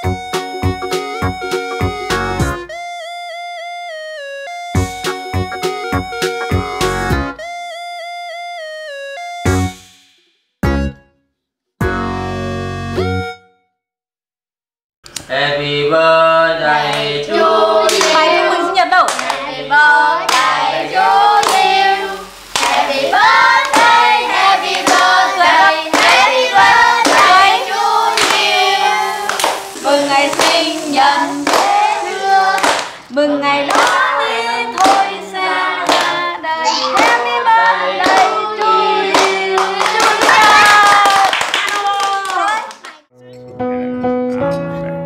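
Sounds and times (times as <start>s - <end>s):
group singing: 15.3s - 40.4s
people clapping: 16.8s - 43.1s.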